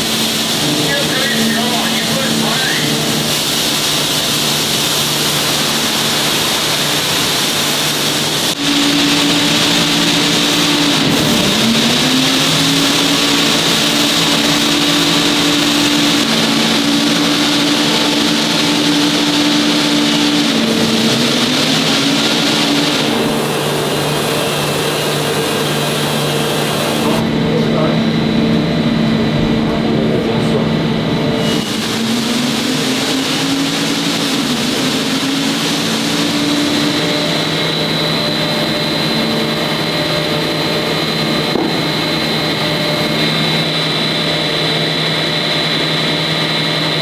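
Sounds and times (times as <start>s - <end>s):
rolling mill machine drone: 0.0s - 47.0s.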